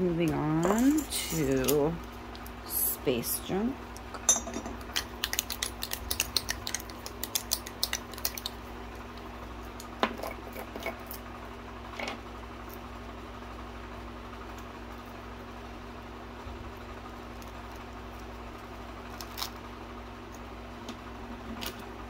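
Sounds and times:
faint hum: 0:00.0 - 0:22.0.

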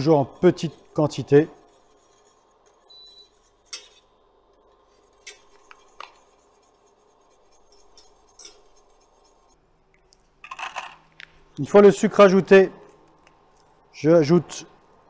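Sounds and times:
whisk scraping a metal saucepan: 0:00.0 - 0:04.2, 0:04.8 - 0:09.6.

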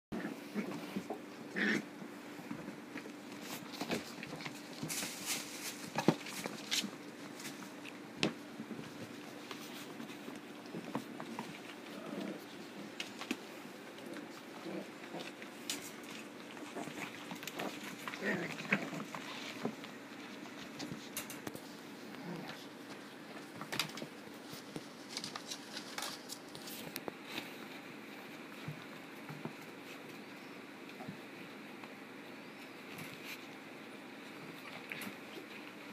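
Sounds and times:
rustling: 0:00.2 - 0:35.9
paw patter on carpet: 0:02.4 - 0:30.2.

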